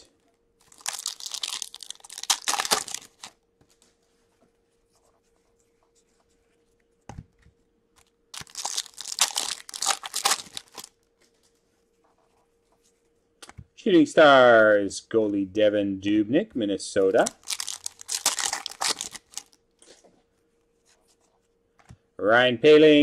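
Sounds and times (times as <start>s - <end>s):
foil wrapper tearing and crinkling: 0.6s - 3.4s, 8.3s - 10.9s, 17.2s - 19.6s.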